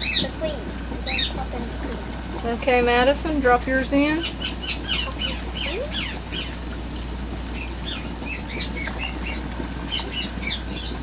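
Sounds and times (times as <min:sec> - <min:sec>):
small birds chirping: 0:00.0 - 0:01.9, 0:04.0 - 0:06.7, 0:07.5 - 0:11.0
steady low hum: 0:00.0 - 0:11.0.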